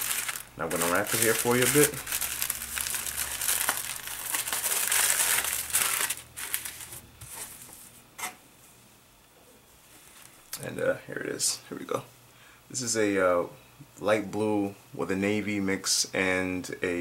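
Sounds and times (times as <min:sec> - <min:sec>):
tissue paper crinkling: 0:00.0 - 0:07.6.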